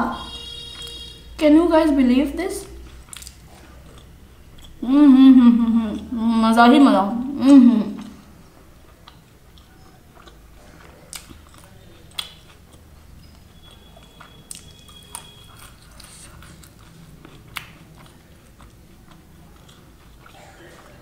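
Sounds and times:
close chewing: 0:02.6 - 0:04.8, 0:08.0 - 0:21.0
wet lip smacks and clicks: 0:03.0 - 0:04.8, 0:11.0 - 0:13.3, 0:17.4 - 0:18.8.

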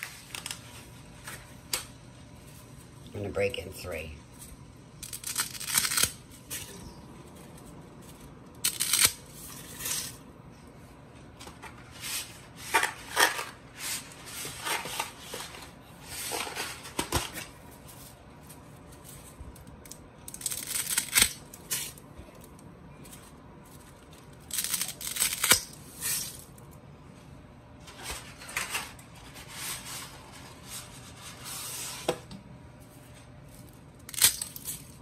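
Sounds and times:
dry spaghetti snapping: 0:19.5 - 0:22.5, 0:24.4 - 0:25.8, 0:34.0 - 0:35.0.

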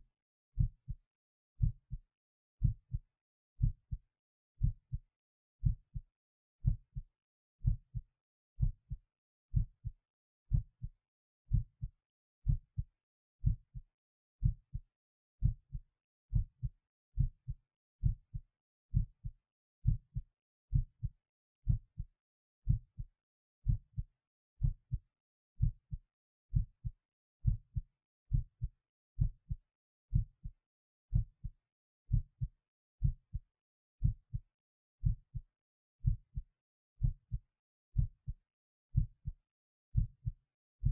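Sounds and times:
heartbeat thumps: 0:00.6 - 0:01.0, 0:01.6 - 0:02.0, 0:02.6 - 0:03.0, 0:03.6 - 0:04.0, 0:04.6 - 0:05.0, 0:05.6 - 0:06.0, 0:06.6 - 0:07.0, 0:07.6 - 0:08.0, 0:08.6 - 0:09.9, 0:10.5 - 0:10.9, 0:12.5 - 0:12.8, 0:13.4 - 0:13.8, 0:15.4 - 0:21.1, 0:21.7 - 0:22.1, 0:23.6 - 0:24.0, 0:25.6 - 0:30.5, 0:32.1 - 0:33.2, 0:34.0 - 0:34.4, 0:35.0 - 0:35.4, 0:36.0 - 0:36.4, 0:38.0 - 0:38.4, 0:39.0 - 0:39.4, 0:40.0 - 0:40.9.

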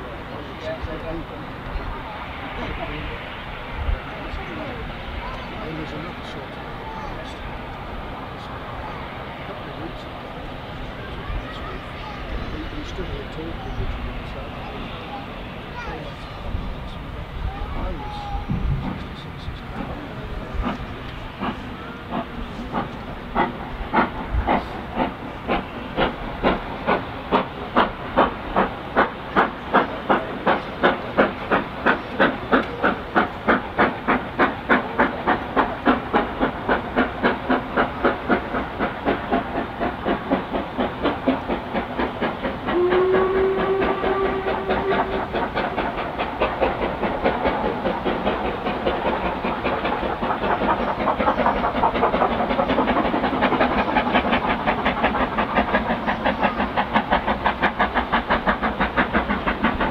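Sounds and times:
steam locomotive exhaust beats: 0:00.0 - 0:59.9
steam whistle: 0:42.7 - 0:45.4.

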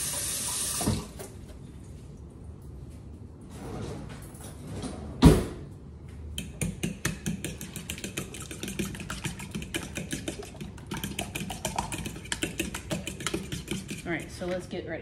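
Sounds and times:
fork beating eggs in bowl: 0:06.4 - 0:14.7.

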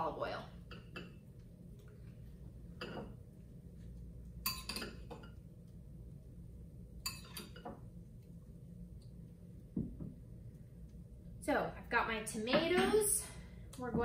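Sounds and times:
spoon clinking against bowl: 0:04.4 - 0:05.4, 0:07.0 - 0:07.6.

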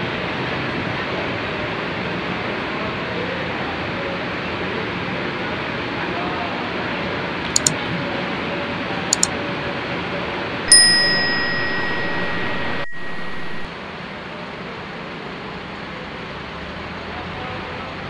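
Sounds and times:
mouse clicks: 0:07.6 - 0:07.8
bus depot background din: 0:10.7 - 0:13.7
notification bell ding: 0:10.7 - 0:13.7.

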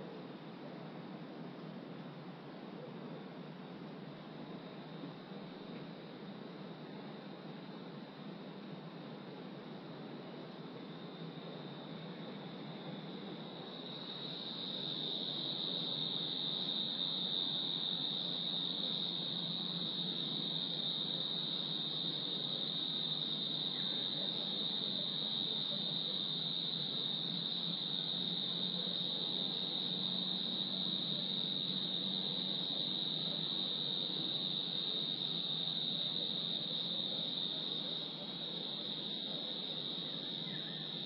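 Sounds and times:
crickets trilling: 0:09.8 - 0:41.0.

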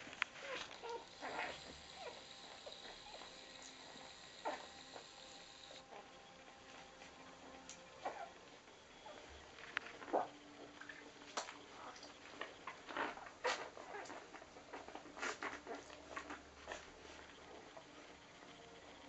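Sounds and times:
faint puppy squeaks: 0:08.0 - 0:08.4.

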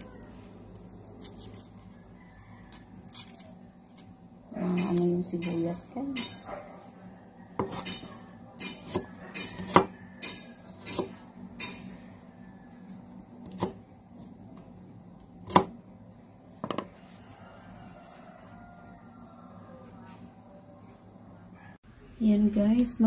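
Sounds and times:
knife cutting onion on board: 0:07.6 - 0:11.3, 0:13.4 - 0:14.7, 0:15.3 - 0:15.8.

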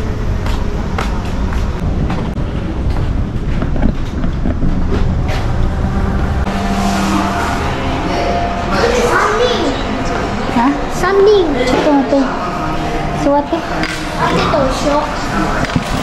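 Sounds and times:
restaurant hum: 0:00.0 - 0:16.0
steady low rumble: 0:00.0 - 0:16.0
footsteps walking: 0:00.3 - 0:05.7.

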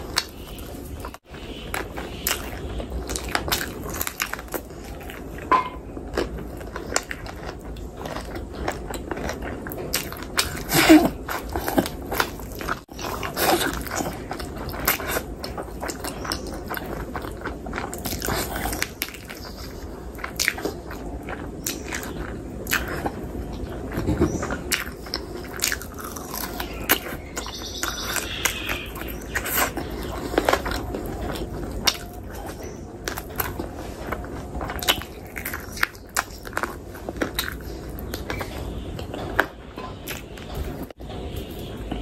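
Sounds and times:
wet chewing and smacking: 0:00.0 - 0:42.0.

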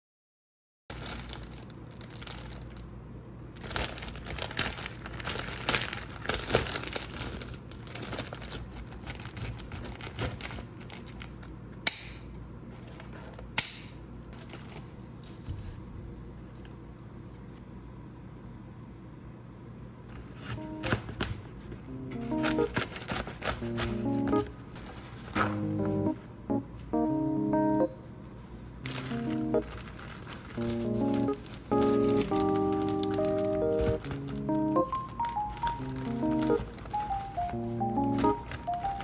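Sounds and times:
wrapping crinkling and rustling: 0:00.9 - 0:11.6, 0:12.7 - 0:13.5, 0:14.3 - 0:15.4, 0:20.2 - 0:26.1, 0:28.5 - 0:39.0.

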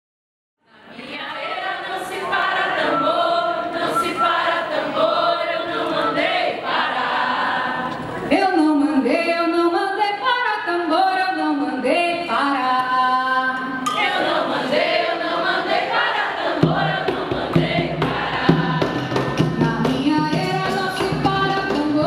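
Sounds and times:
women singing together unaccompanied: 0:00.6 - 0:22.0
woman singing into a microphone: 0:08.3 - 0:14.0, 0:19.5 - 0:22.0.

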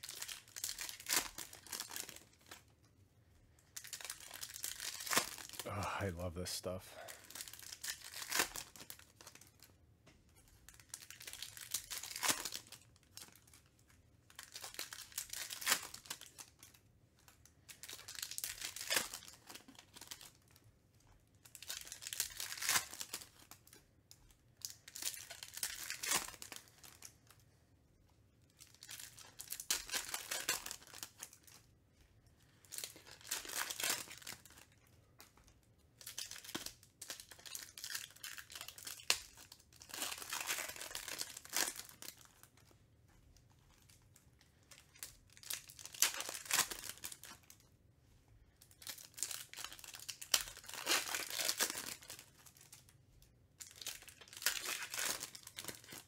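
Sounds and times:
card pack wrappers tearing and crinkling: 0:00.0 - 0:02.7, 0:03.8 - 0:05.8, 0:07.0 - 0:09.6, 0:10.7 - 0:13.6, 0:14.3 - 0:16.8, 0:17.7 - 0:20.5, 0:21.4 - 0:23.8, 0:24.6 - 0:27.4, 0:28.5 - 0:31.6, 0:32.7 - 0:34.7, 0:36.0 - 0:42.7, 0:44.7 - 0:47.6, 0:48.7 - 0:52.9, 0:53.6 - 0:56.0.

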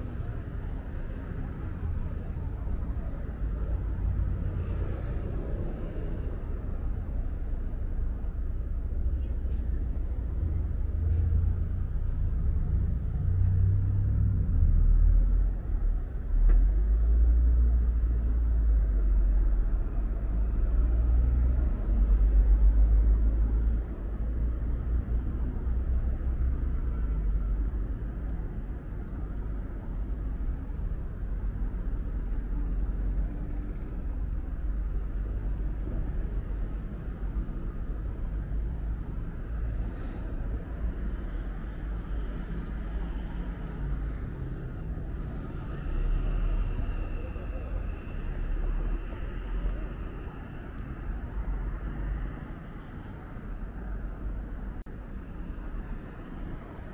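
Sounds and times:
street traffic passing: 0:00.0 - 0:56.9.

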